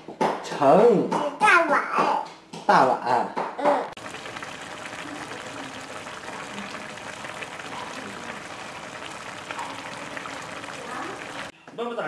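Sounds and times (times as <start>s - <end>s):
stew bubbling in a pan: 4.0s - 11.5s.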